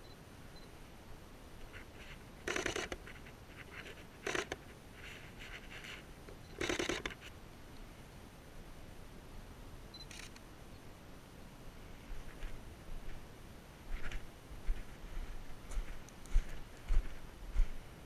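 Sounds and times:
faint rustles: 0:01.6 - 0:08.0, 0:11.8 - 0:13.3, 0:13.9 - 0:17.9.

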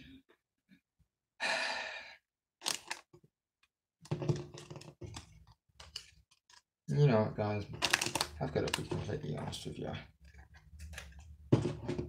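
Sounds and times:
breathy sigh: 0:01.4 - 0:02.2.

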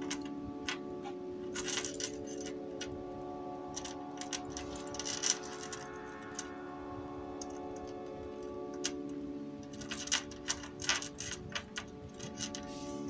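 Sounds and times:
faint background tones: 0:00.0 - 0:13.0
metal charms clinking: 0:03.7 - 0:06.5, 0:09.6 - 0:13.0.

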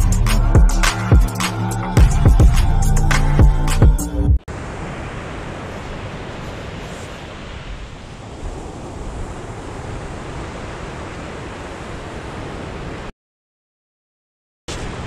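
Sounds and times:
surf breaking on shingle beach: 0:04.5 - 0:13.1, 0:14.7 - 0:15.0
wind buffeting microphone: 0:04.5 - 0:13.1.

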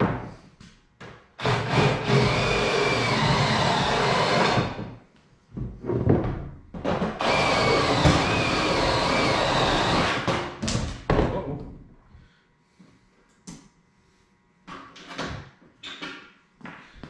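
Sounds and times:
power drill drilling: 0:01.4 - 0:04.8, 0:07.2 - 0:10.3.

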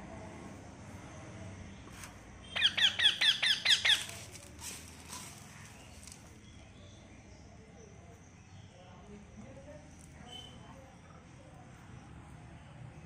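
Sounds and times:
parakeet squawking: 0:02.5 - 0:04.1.

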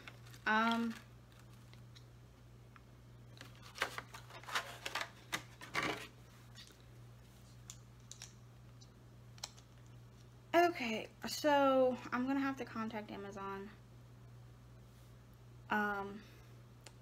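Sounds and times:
packaging rustling: 0:00.0 - 0:01.9, 0:03.3 - 0:06.2
low electrical hum: 0:00.0 - 0:17.0.

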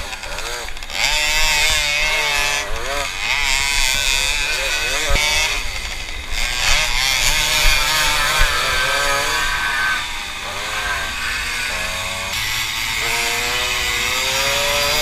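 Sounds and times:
steady rushing hiss: 0:00.0 - 0:14.8
moped engine revving: 0:00.0 - 0:15.0.

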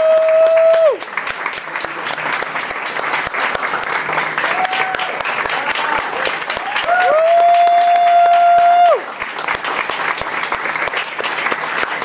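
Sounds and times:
high whoo cheer: 0:00.0 - 0:01.1, 0:04.4 - 0:09.1
audience clapping: 0:00.0 - 0:12.0.

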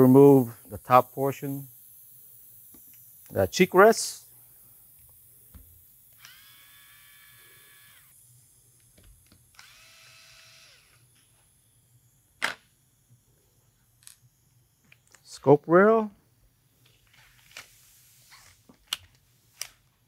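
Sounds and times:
cordless screwdriver motor whining: 0:06.1 - 0:08.2, 0:09.5 - 0:11.1.

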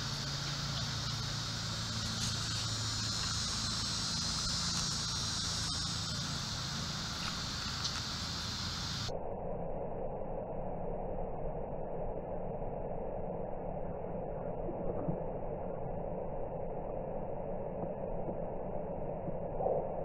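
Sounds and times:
high-pitched insect chorus: 0:00.0 - 0:09.1
low steady hum: 0:00.0 - 0:20.0.

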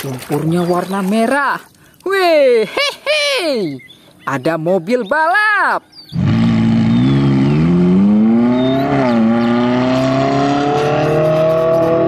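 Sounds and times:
car engine accelerating hard: 0:06.2 - 0:12.0.

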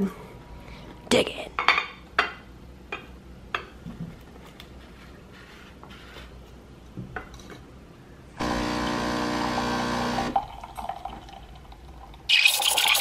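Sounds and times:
espresso machine pump humming: 0:08.4 - 0:10.4
steam wand hissing into milk: 0:12.3 - 0:13.0.

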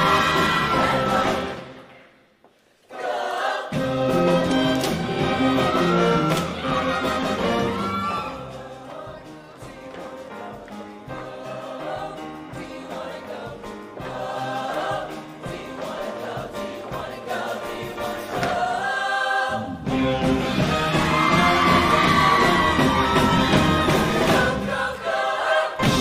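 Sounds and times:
choir singing with band: 0:00.0 - 0:01.9, 0:02.9 - 0:26.0.

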